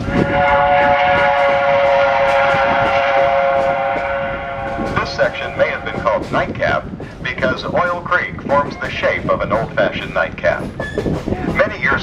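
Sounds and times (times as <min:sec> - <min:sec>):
locomotive horn blast: 0:00.0 - 0:06.4
train wheels rumbling on rails: 0:00.0 - 0:12.0.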